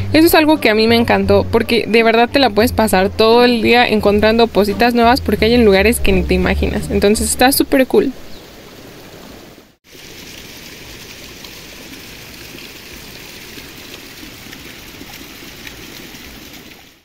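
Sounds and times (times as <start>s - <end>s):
water rushing: 0.0s - 17.0s.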